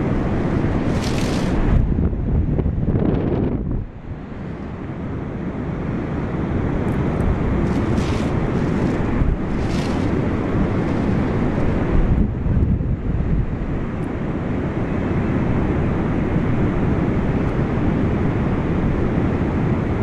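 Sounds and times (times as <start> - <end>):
wind buffeting microphone: 0.0 - 5.0, 6.3 - 14.0
hissing rushes: 0.8 - 1.8, 7.6 - 11.7.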